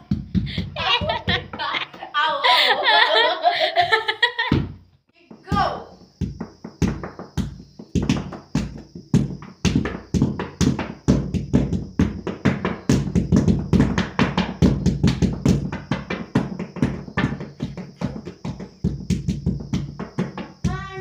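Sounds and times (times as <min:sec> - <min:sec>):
hands drumming on mattress: 0:00.0 - 0:02.0, 0:04.4 - 0:21.0.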